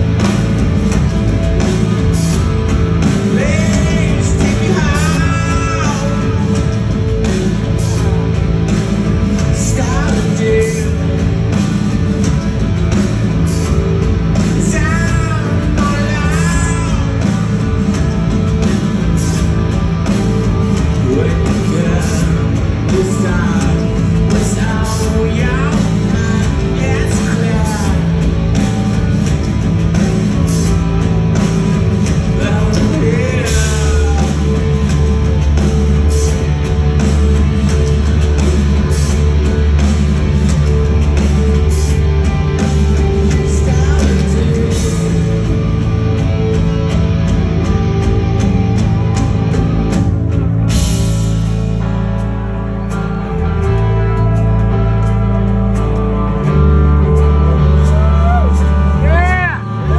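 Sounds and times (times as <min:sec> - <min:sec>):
live rock band: 0:00.0 - 0:59.9
man singing: 0:03.0 - 0:07.0, 0:09.4 - 0:11.3, 0:14.4 - 0:17.8, 0:20.8 - 0:29.1, 0:32.1 - 0:35.0, 0:42.9 - 0:45.6.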